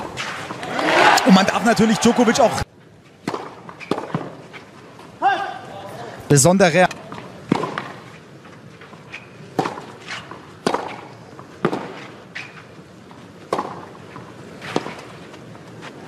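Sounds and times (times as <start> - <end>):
racket striking tennis ball: 3.2 - 4.4, 7.1 - 8.1, 9.2 - 12.6, 13.4 - 15.2.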